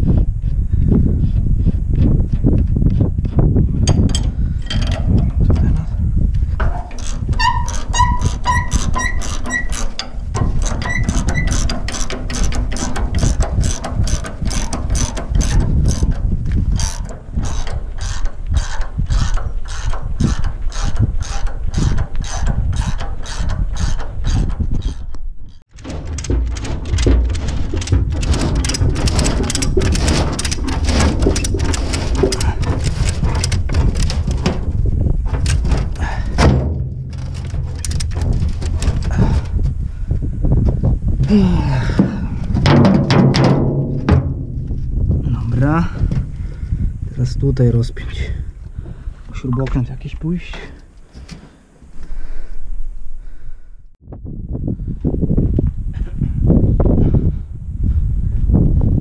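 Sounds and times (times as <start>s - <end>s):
ratchet drive clicking: 6.7s - 25.0s.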